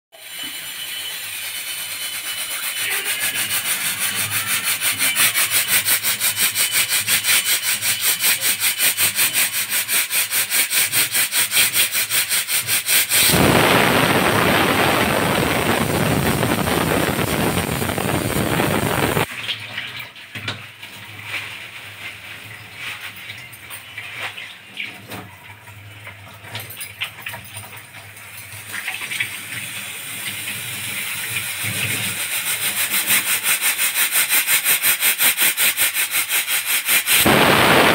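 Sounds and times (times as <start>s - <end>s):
pressure cooker hiss pulsing: 0.2s - 19.3s, 29.3s - 37.9s
pressure cooker steam whistle: 0.2s - 19.3s, 29.9s - 37.9s.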